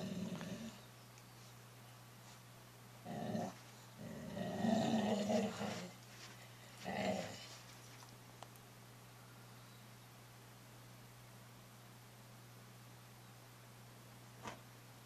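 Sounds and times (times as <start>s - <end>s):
dog growling: 0.0s - 0.9s, 3.0s - 6.0s, 6.8s - 7.6s.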